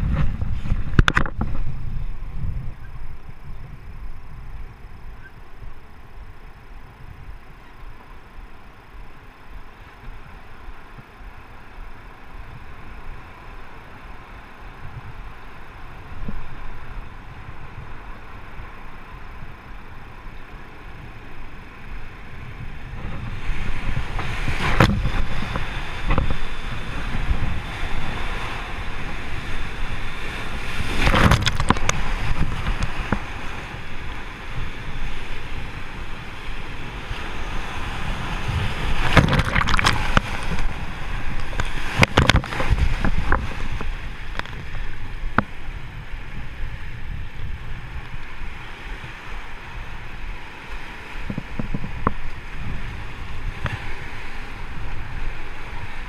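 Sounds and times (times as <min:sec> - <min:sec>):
waves crashing into raft: 0:36.6 - 0:45.6.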